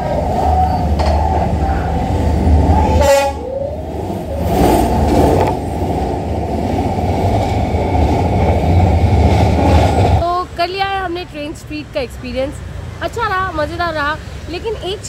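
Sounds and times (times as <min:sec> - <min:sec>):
diesel train rumbling past: 0:00.0 - 0:15.0
train horn blast: 0:02.8 - 0:03.8.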